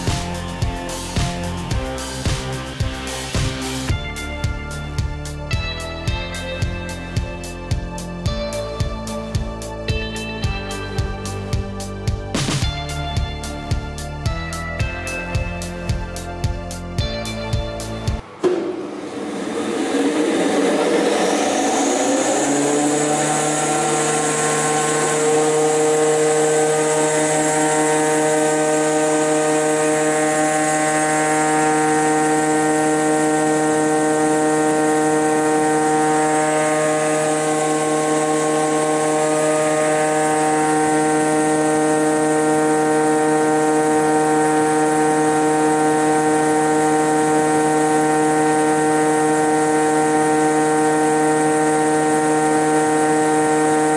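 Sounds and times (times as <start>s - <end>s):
jointer-planer motor whining: 18.4s - 53.9s.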